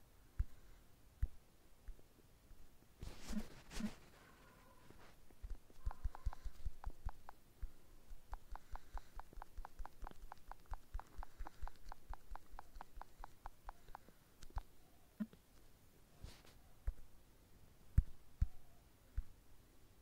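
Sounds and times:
fingertip taps on touchscreen: 5.3 - 14.7.

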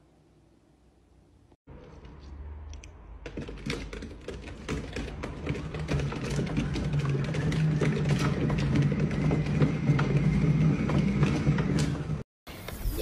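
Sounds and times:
cat exercise wheel rumbling: 3.2 - 12.2.

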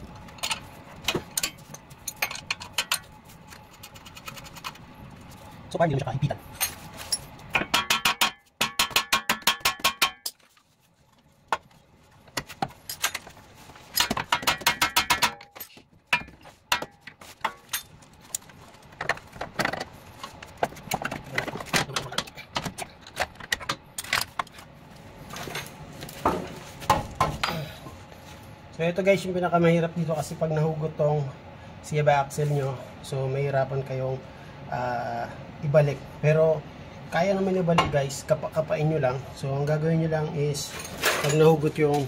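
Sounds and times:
tools knocking on metal parts: 7.5 - 10.4, 14.0 - 18.0.

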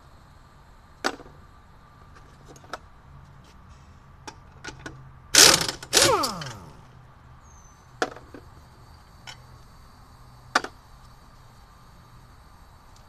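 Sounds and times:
sharp metal clank: 5.4 - 6.8.

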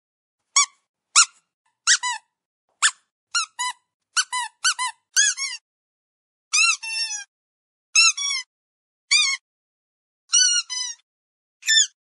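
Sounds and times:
squeaky dog toy squeaking: 0.5 - 5.6, 6.5 - 7.3, 8.0 - 8.5, 9.1 - 9.4, 10.3 - 11.0, 11.6 - 12.0.

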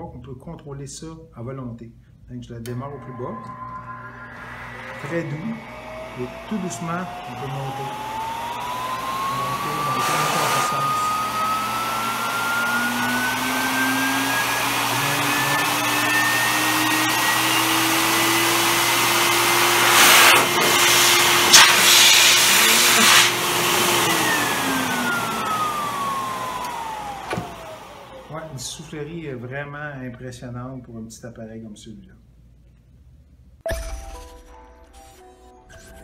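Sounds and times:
grooming dryer motor whine: 3.0 - 29.0.

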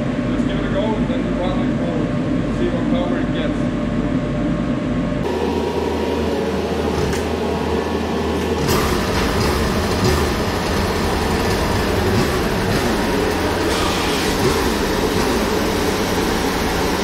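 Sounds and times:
snowmobile engine running: 5.3 - 17.0.

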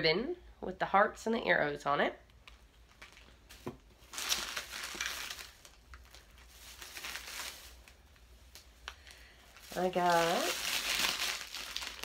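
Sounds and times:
plastic bag rustling: 2.4 - 12.0.

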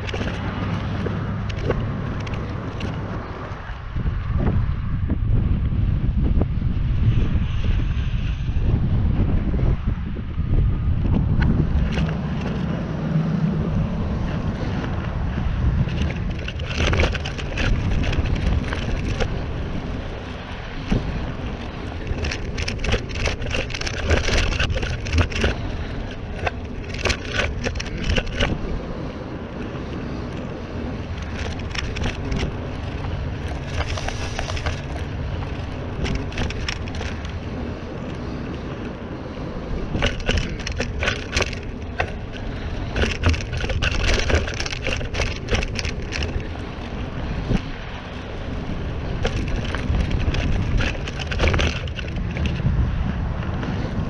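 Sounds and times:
bike rattling over rough ground: 0.0 - 54.0
bike tyres crunching on dirt: 0.0 - 54.0
wind buffeting microphone: 0.0 - 54.0.

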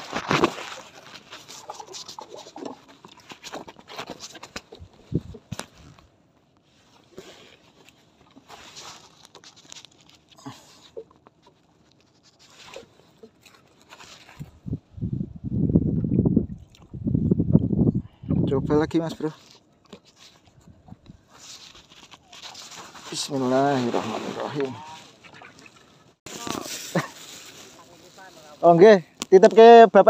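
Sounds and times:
small clicks and rustles: 0.0 - 14.6, 19.1 - 23.4.

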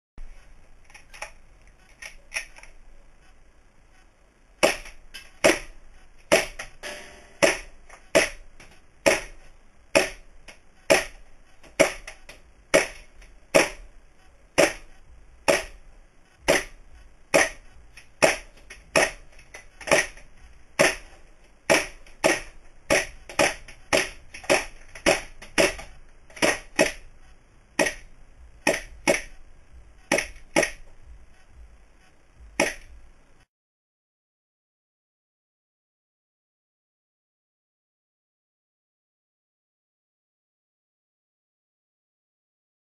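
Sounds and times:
airsoft pistol shots: 6.3 - 8.4.

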